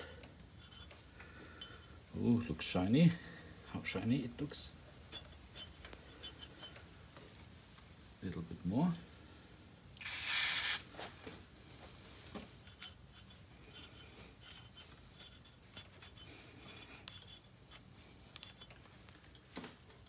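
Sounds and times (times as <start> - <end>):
aerosol spray: 10.0 - 11.0.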